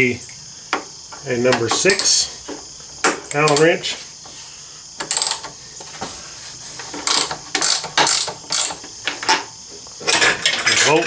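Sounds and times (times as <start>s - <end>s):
ratchet wrench clicking: 3.3s - 3.8s, 5.0s - 5.6s, 7.0s - 8.9s.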